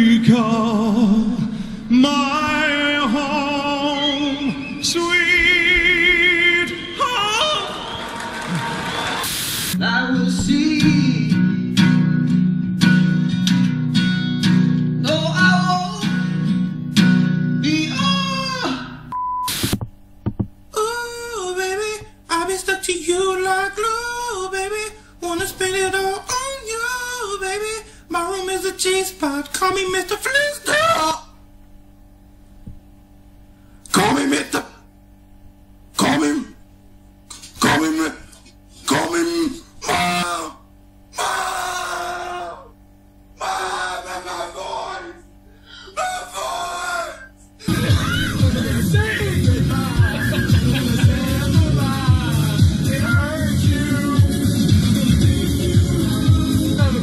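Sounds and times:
person singing a cappella: 0:00.0 - 0:07.9, 0:09.8 - 0:11.6, 0:15.0 - 0:16.2, 0:17.6 - 0:19.1, 0:20.7 - 0:31.3, 0:38.9 - 0:42.8, 0:43.4 - 0:57.0.

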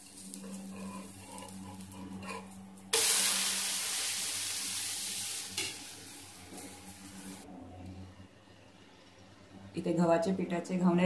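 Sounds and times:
batter sizzling on hot pan: 0:00.0 - 0:02.1, 0:02.9 - 0:07.4.

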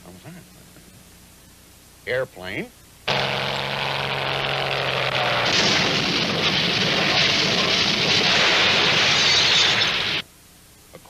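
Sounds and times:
cartoon airplane engine droning: 0:03.1 - 0:10.2.

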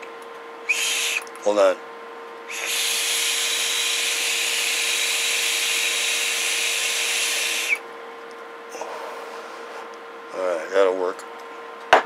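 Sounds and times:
faint steady hum: 0:00.0 - 0:12.0
loud hiss: 0:00.7 - 0:01.2, 0:02.5 - 0:07.8.

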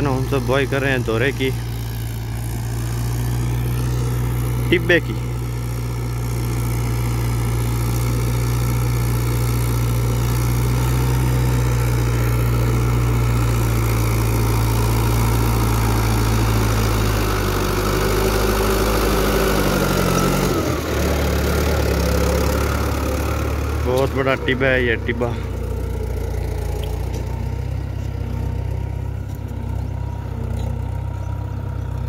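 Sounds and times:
tractor diesel engine under load: 0:00.0 - 0:32.0.

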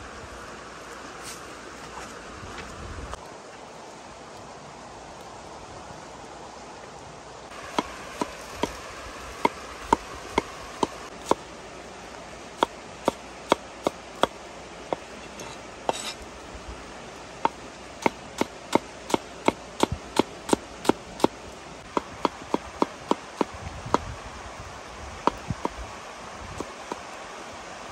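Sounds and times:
cleaver chopping on wooden board: 0:07.7 - 0:08.8, 0:09.4 - 0:11.4, 0:17.4 - 0:21.3, 0:21.9 - 0:24.1, 0:25.2 - 0:25.4.

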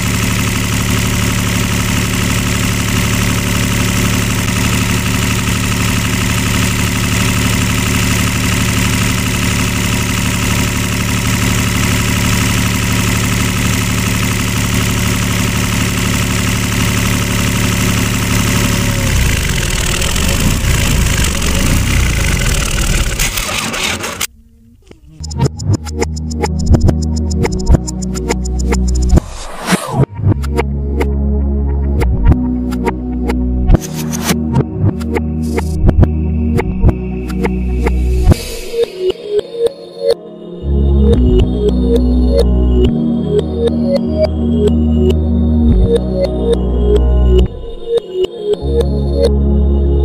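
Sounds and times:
tractor engine idling: 0:00.0 - 0:24.3.

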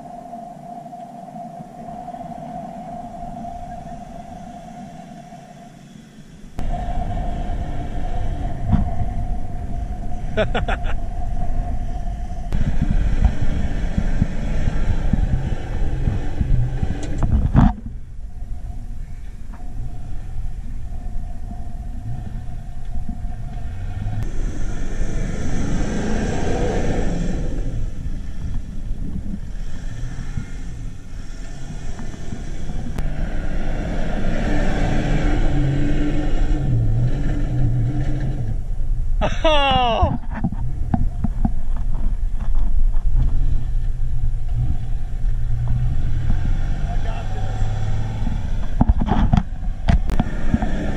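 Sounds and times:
truck engines running hard: 0:12.5 - 0:17.4, 0:44.4 - 0:50.9.

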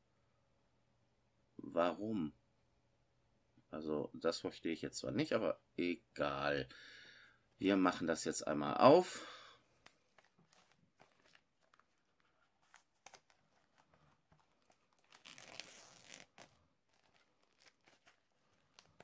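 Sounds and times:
plastic film crinkling: 0:09.8 - 0:19.0.

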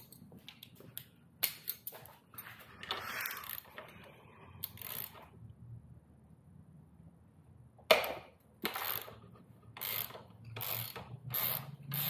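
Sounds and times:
socket ratchet clicking: 0:04.6 - 0:05.3, 0:08.6 - 0:12.0.

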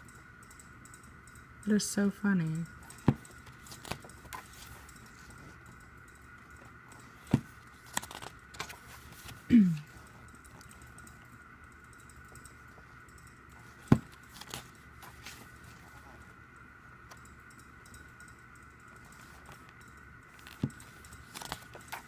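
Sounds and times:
album pages turning: 0:03.0 - 0:05.4, 0:07.0 - 0:09.5, 0:13.6 - 0:16.3, 0:20.4 - 0:22.0.

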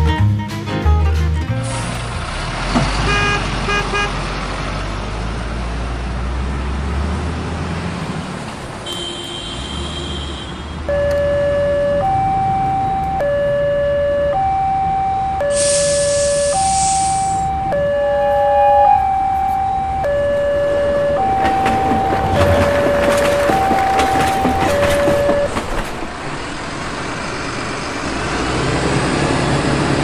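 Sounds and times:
electronic two-tone siren: 0:10.8 - 0:25.6.

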